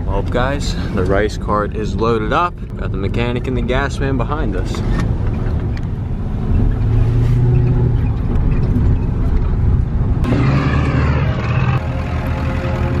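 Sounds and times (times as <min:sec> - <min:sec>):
truck engine droning: 0:06.4 - 0:13.0.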